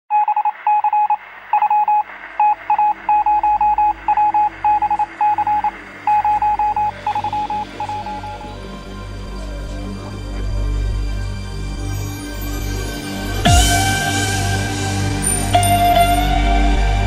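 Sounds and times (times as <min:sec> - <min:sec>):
electronic beeps: 0:00.1 - 0:08.6.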